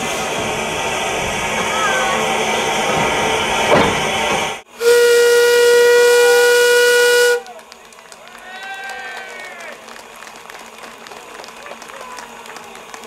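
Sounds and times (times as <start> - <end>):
steam hissing: 0.0 - 7.4
steam locomotive whistle: 4.7 - 7.5.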